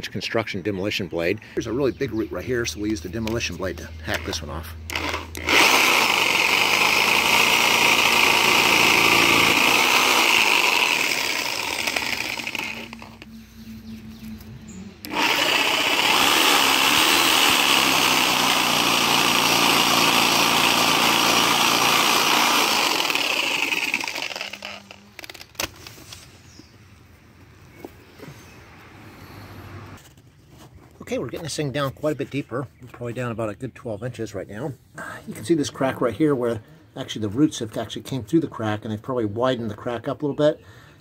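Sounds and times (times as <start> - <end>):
reciprocating saw cutting root: 4.9 - 13.3, 15.0 - 25.1.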